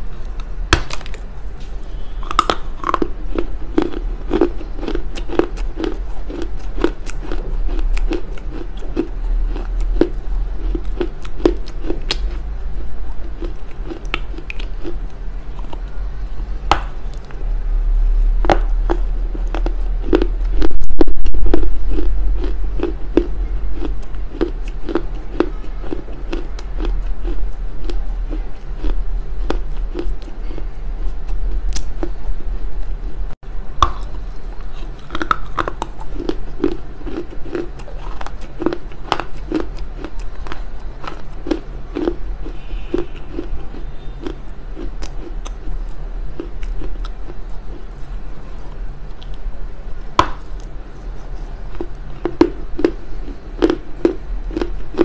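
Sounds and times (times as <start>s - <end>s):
loud low rumble: 0.0s - 37.4s
chewing and crunching clay: 0.0s - 55.0s.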